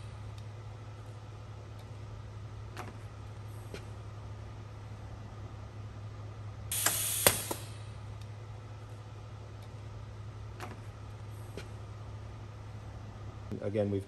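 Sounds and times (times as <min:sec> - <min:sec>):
steady low hum: 0:00.0 - 0:14.0
sharp pneumatic clicks: 0:06.7 - 0:07.8
compressed air hiss: 0:06.7 - 0:07.9.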